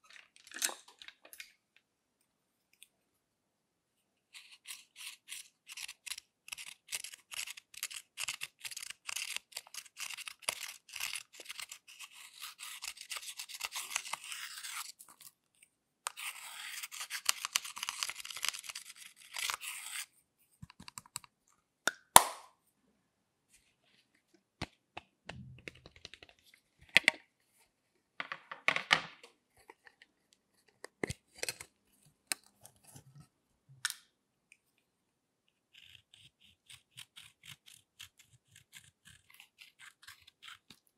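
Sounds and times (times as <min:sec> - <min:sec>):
metal tool scraping powder: 0:18.6 - 0:20.1.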